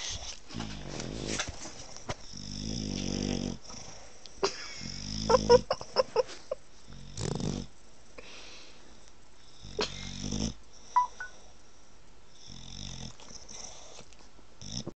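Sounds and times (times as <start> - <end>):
dog wheezy snorting breaths: 12.3 - 14.9.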